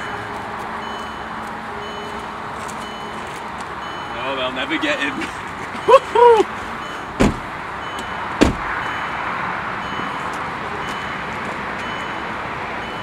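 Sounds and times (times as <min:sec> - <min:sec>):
car engine running: 0:06.6 - 0:09.2
car doors slamming: 0:07.1 - 0:08.9.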